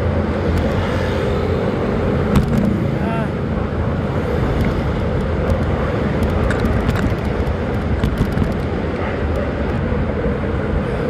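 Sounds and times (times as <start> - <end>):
road noise: 0.0 - 11.0
wind rumble on microphone: 0.0 - 11.0.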